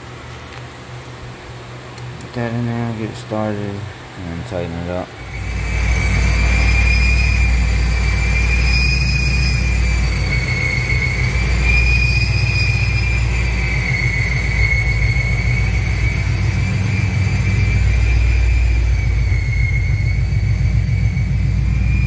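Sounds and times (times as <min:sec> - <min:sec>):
supercharger whine: 0:00.0 - 0:22.0
car engine idling rumble: 0:05.2 - 0:22.0.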